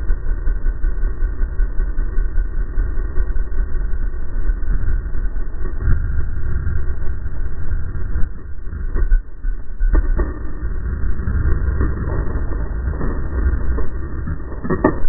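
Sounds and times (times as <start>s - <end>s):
dirt bike engine running: 0.0s - 15.0s
wind buffeting microphone: 4.8s - 9.3s
knocks from bumps: 11.2s - 15.0s.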